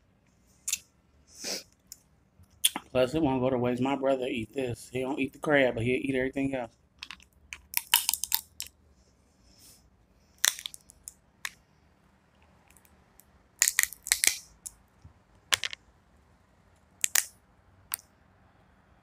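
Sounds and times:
shells cracking by hand: 7.0 - 8.7, 10.4 - 11.6, 12.6 - 14.8, 17.0 - 18.0.

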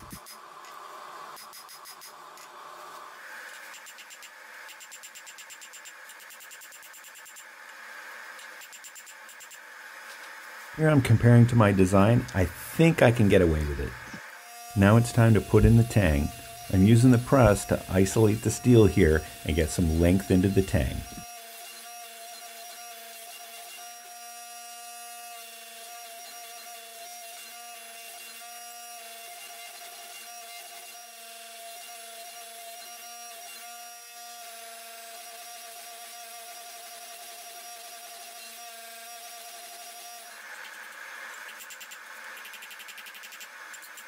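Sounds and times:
hydraulic press motor humming: 10.9 - 21.2.

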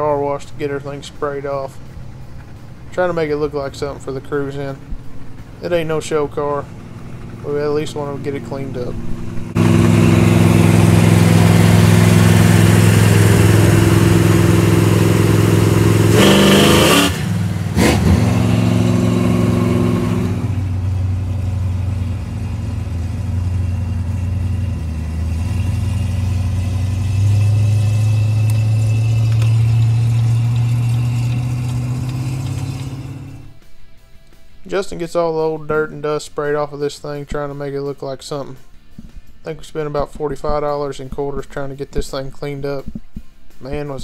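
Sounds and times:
wind and tire rush: 0.0 - 33.6
low engine drone: 0.0 - 37.1.

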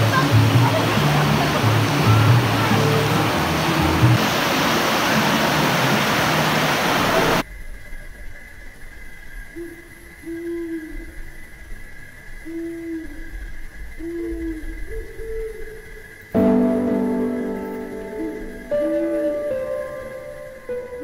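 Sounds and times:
stream pouring over rocks: 0.0 - 7.4
quiet background music: 16.4 - 21.0.

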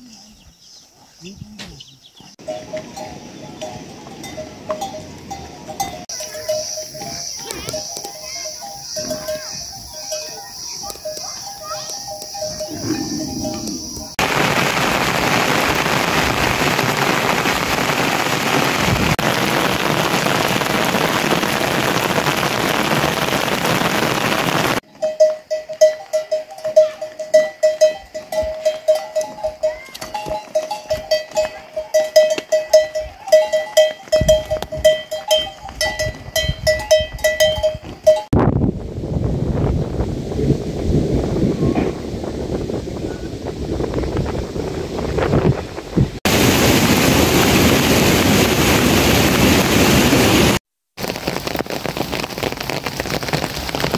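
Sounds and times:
metal neck bells clanking: 2.4 - 14.2, 24.8 - 38.4.

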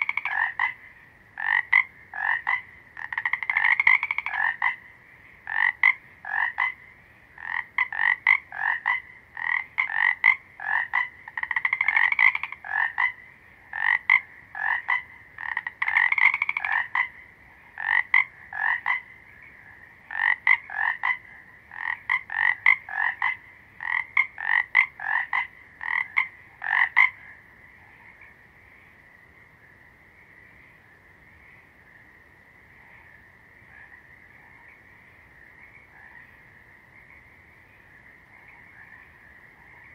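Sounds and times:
frogs croaking: 0.0 - 39.9.

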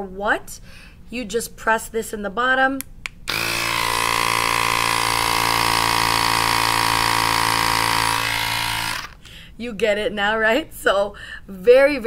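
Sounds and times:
electric compressor motor humming: 3.3 - 9.3.

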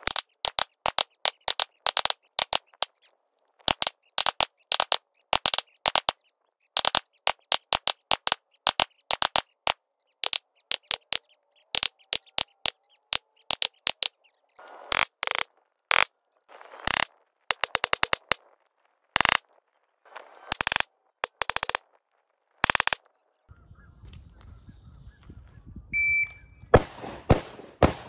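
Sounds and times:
sped up gunshots: 3.7 - 14.2, 26.7 - 28.0.

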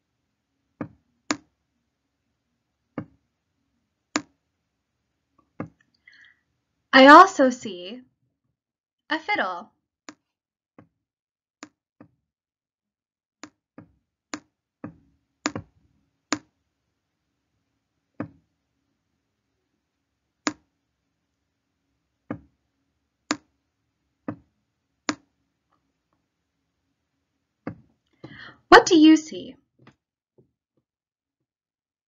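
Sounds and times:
stylus tapping tablet screen: 0.8 - 1.6, 2.9 - 3.2, 4.2 - 4.4, 5.4 - 5.9, 13.4 - 16.6, 18.2 - 18.4, 20.4 - 20.7, 22.2 - 22.6, 23.2 - 23.6, 24.2 - 25.4, 27.6 - 28.5.

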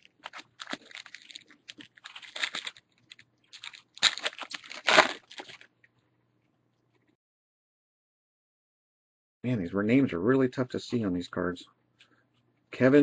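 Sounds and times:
wrapper tearing and crinkling: 0.0 - 5.7.

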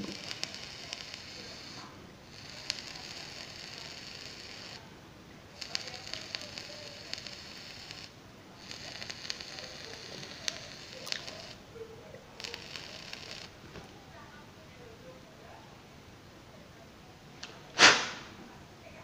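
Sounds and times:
vape coil sizzling and crackling: 0.0 - 4.8, 5.6 - 11.6, 12.4 - 13.6.

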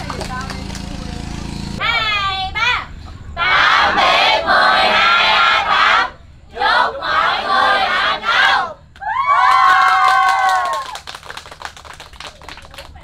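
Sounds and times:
crowd shouting a chant: 3.4 - 8.8
crowd cheering: 7.1 - 11.6.

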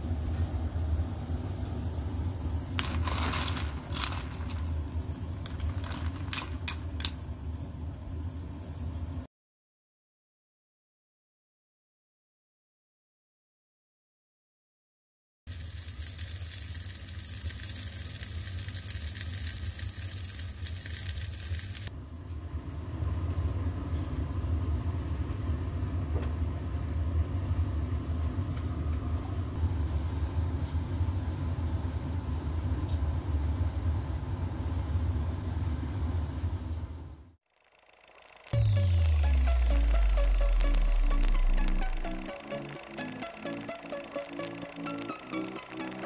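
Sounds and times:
pot of stock bubbling: 15.5 - 21.9
fish sizzling in oven: 15.5 - 29.6
low hum: 38.2 - 46.0.

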